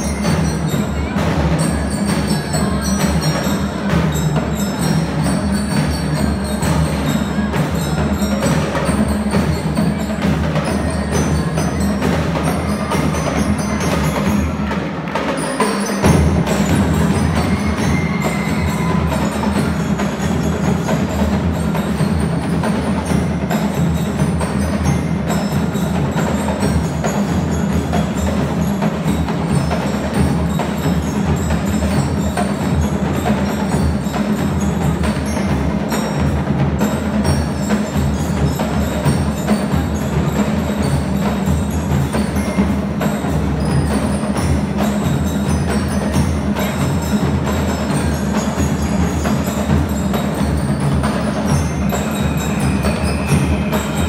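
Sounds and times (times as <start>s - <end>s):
marching drums: 0.0s - 54.0s
bell lyre melody: 15.6s - 54.0s.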